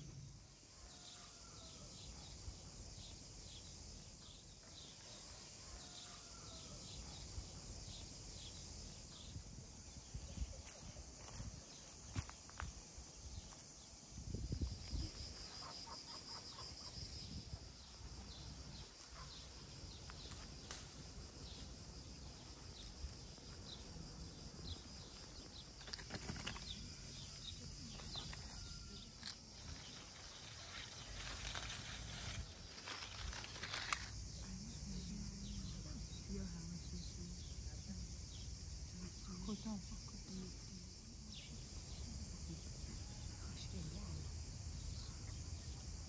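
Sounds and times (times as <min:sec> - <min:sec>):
small birds chirping: 0:07.8 - 0:34.0
leaves and branches rustling: 0:09.3 - 0:34.2.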